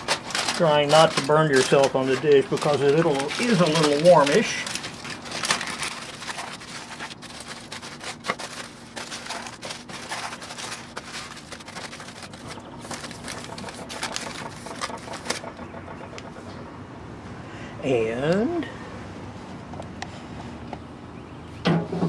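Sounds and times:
aluminum foil crinkling: 0.0s - 15.6s.

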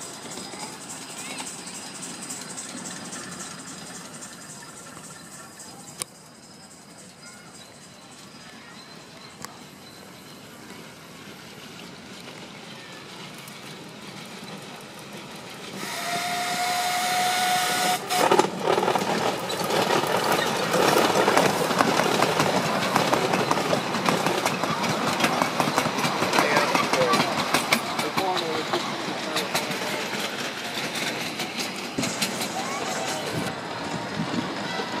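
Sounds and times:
miniature train passing: 0.0s - 35.0s
wheels clattering on track: 0.0s - 35.0s
locomotive whistle: 15.8s - 18.4s.

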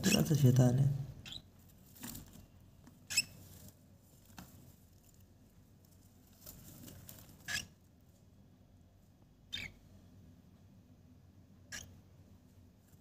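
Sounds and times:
birds scuffling in wood shavings: 1.7s - 2.4s, 3.2s - 7.7s.

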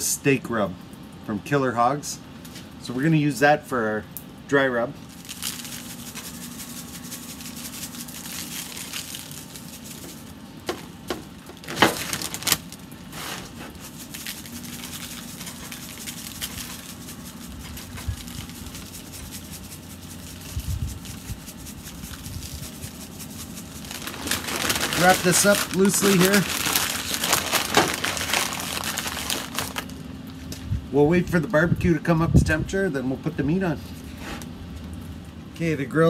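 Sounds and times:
steady low hum: 0.0s - 36.0s
seasoning shaker rattling: 5.1s - 12.4s, 13.1s - 29.9s.

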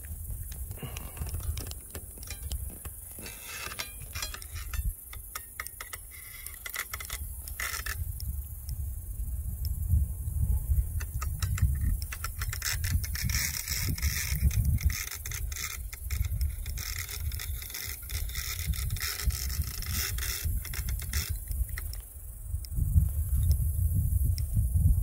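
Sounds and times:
wind buffeting microphone: 0.0s - 5.4s, 7.1s - 25.0s
fishing reel clicking and whirring: 3.3s - 8.2s, 11.0s - 22.0s.

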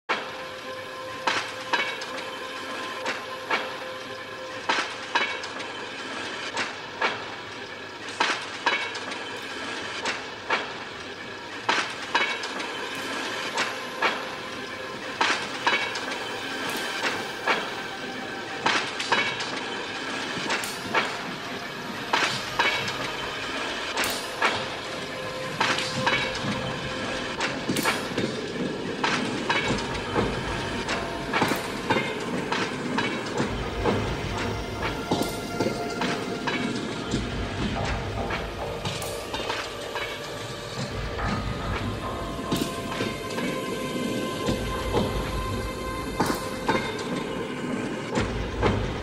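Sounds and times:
rail wheels clacking over joints: 0.1s - 49.0s.

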